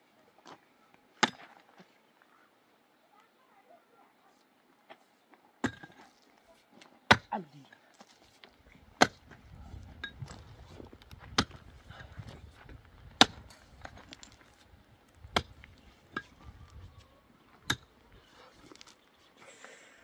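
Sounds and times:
mattock striking stony soil: 6.8s - 16.8s.

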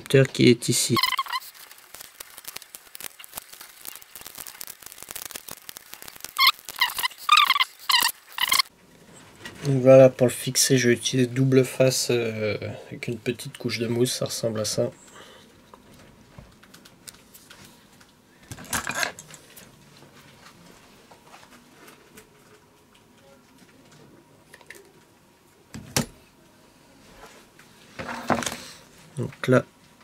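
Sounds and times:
tape and scissors handling noise: 1.0s - 8.7s.

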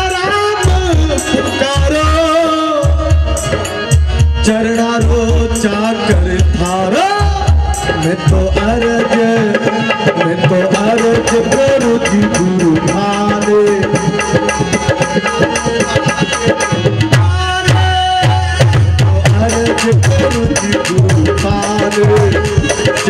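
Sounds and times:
accompanying instruments: 0.0s - 23.0s
person singing: 4.4s - 16.3s, 17.2s - 23.0s.

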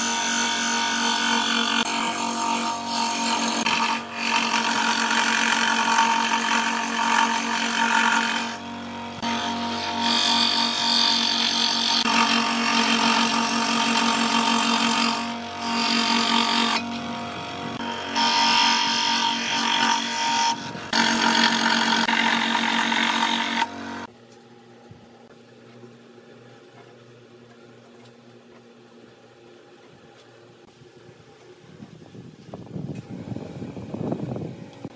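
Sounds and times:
scroll saw cutting wood: 0.0s - 24.1s.

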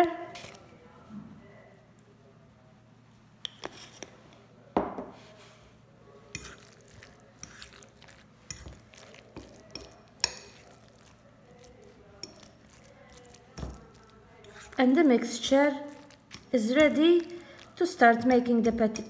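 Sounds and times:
fork clinking against glass bowl: 6.4s - 11.1s, 12.2s - 14.8s.

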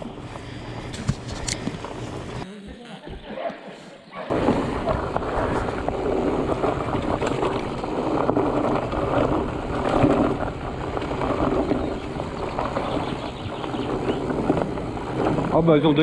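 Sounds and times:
bike rattles and knocks: 0.0s - 2.4s, 4.3s - 16.0s
tyres rumbling over dirt: 4.3s - 16.0s
wind buffeting microphone: 4.3s - 16.0s.

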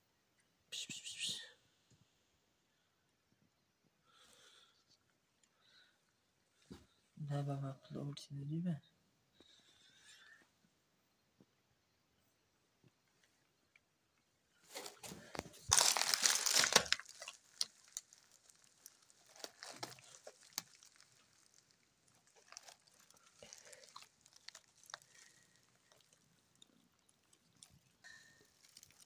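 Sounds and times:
dry straw rustling and crackling: 14.7s - 29.0s.

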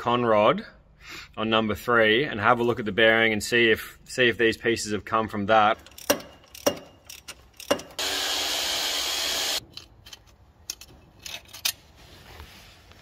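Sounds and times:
metallic clinks of tools: 5.8s - 7.9s
power tool running: 8.0s - 9.6s.

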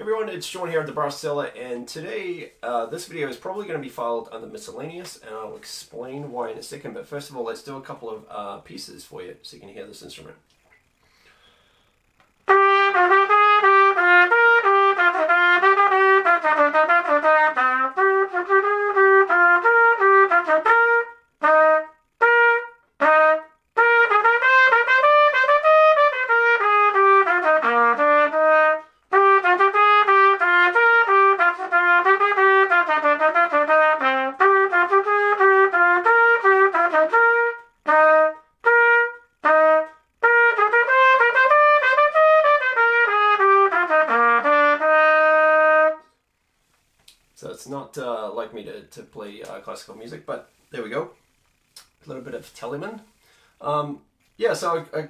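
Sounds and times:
solo trumpet melody: 12.4s - 46.1s.

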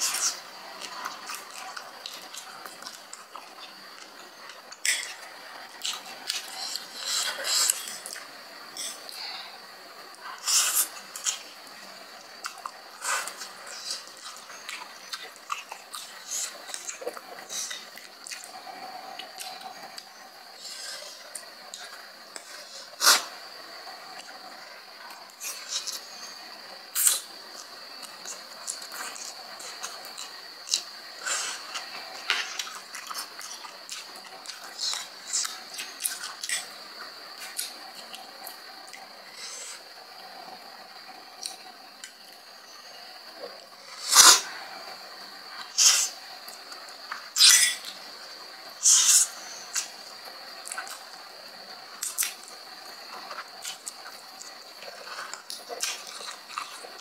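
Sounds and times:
faint high-pitched whine: 0.0s - 57.0s.

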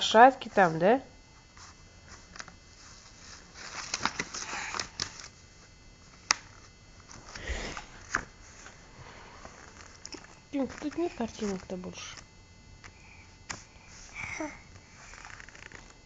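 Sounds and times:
book pages rustling and tapping: 3.6s - 5.4s, 8.0s - 8.7s, 9.5s - 12.2s.

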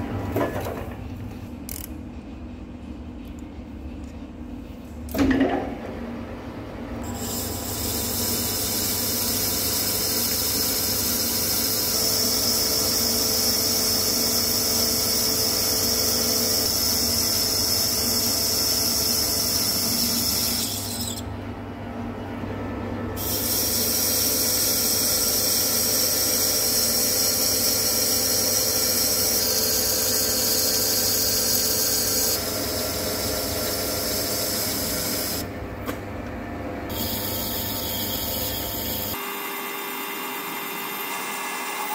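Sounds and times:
lathe tool cutting metal hiss: 7.1s - 21.2s, 23.2s - 35.4s.

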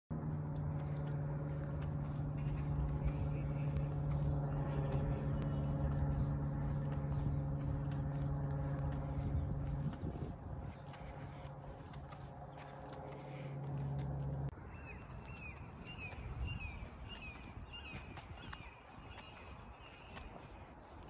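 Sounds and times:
low rumble: 0.1s - 14.8s
low mechanical hum: 0.1s - 21.0s.

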